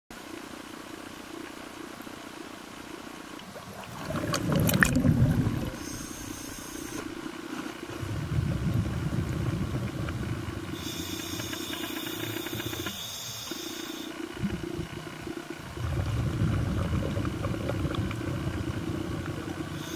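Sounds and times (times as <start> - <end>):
muffled underwater rumble: 2.8 - 19.9
water sloshing and splashing: 3.3 - 6.2, 14.4 - 19.8.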